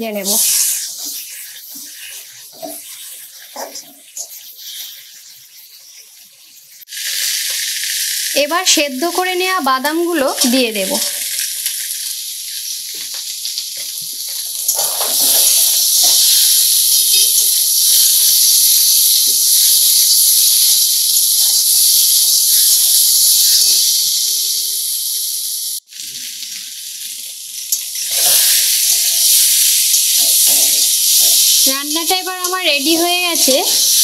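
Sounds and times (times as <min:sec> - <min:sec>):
food sizzling in hot oil: 0:00.0 - 0:34.0
spatula scraping a pan: 0:00.2 - 0:06.4, 0:13.8 - 0:20.8, 0:28.0 - 0:34.0.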